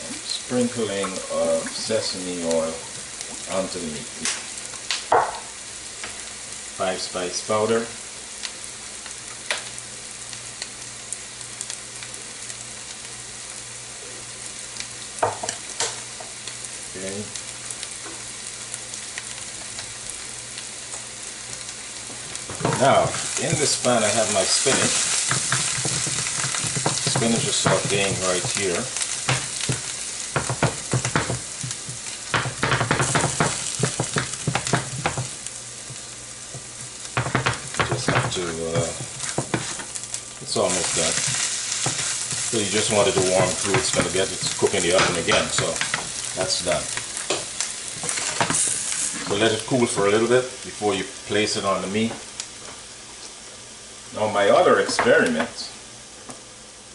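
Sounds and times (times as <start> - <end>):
spinach sizzling in a frying pan: 0.0 - 56.9
utensil scraping and tapping pan: 24.6 - 28.6, 29.3 - 35.3, 36.6 - 39.9, 40.8 - 46.1.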